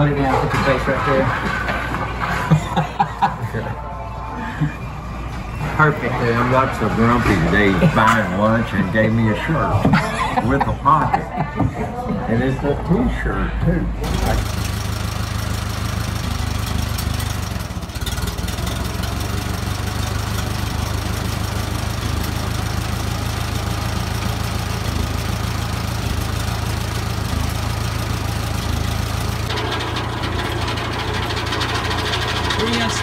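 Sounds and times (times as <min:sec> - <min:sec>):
tractor engine running: 0:00.0 - 0:33.0
engine rattle: 0:05.1 - 0:11.0, 0:13.6 - 0:33.0.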